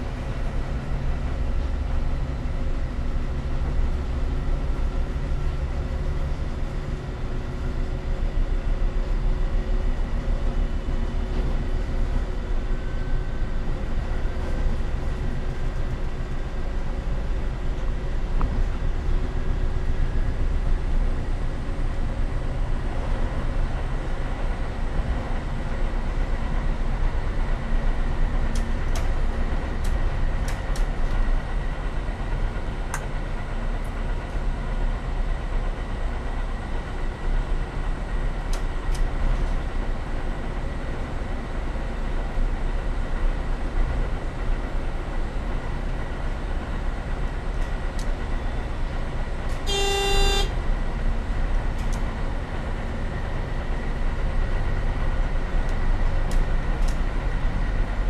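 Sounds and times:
train rumbling: 0.0 - 58.0
train horn toot: 49.6 - 50.6.

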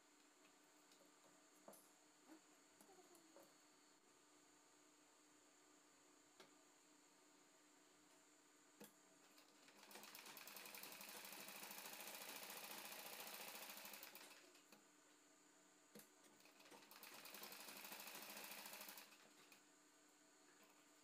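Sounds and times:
sewing machine stitching: 9.3 - 14.6, 16.4 - 19.6.

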